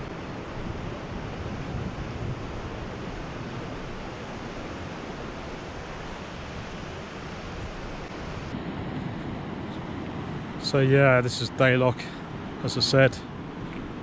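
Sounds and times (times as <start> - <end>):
water rushing over weir: 0.0 - 9.1.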